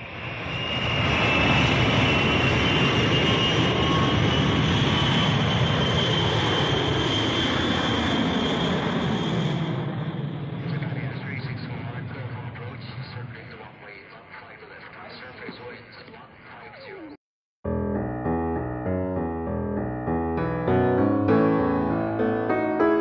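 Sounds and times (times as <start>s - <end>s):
jet airliner passing overhead: 0.0s - 14.9s.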